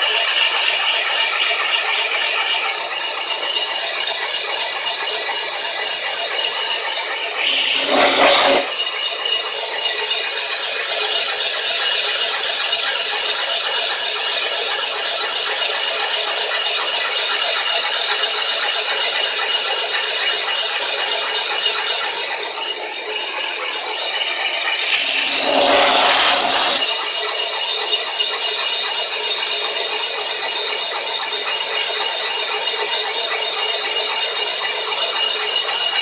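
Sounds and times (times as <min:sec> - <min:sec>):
boring bar cutting metal: 0:07.4 - 0:08.8, 0:24.6 - 0:27.0.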